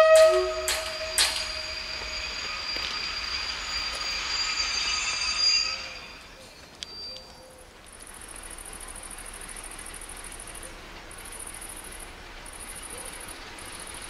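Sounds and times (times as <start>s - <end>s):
insects trilling: 0.0s - 10.6s.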